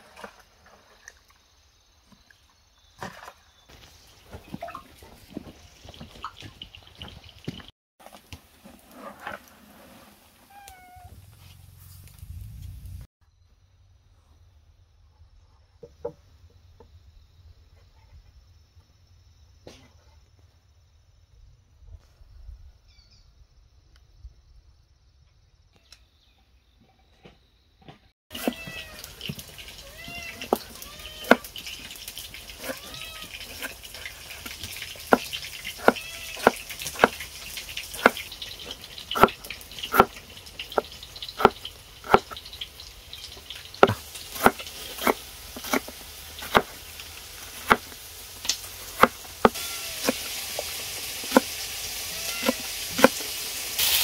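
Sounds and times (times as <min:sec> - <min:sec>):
small animal calling: 0:35.8 - 0:36.6, 0:49.4 - 0:50.3, 0:52.0 - 0:53.1
steady hiss: 0:46.3 - 0:54.0.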